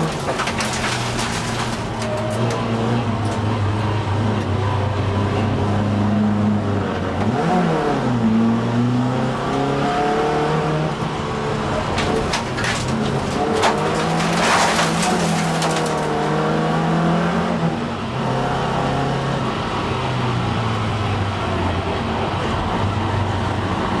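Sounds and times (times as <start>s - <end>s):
gravel rattling against car: 0.0s - 4.5s, 11.2s - 16.6s.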